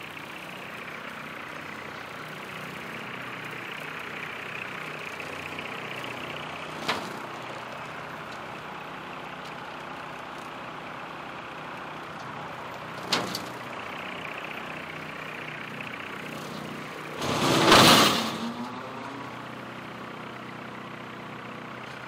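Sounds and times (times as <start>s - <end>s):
tractor diesel engine running: 0.0s - 22.0s
rotary cutter cutting grass: 16.2s - 18.8s.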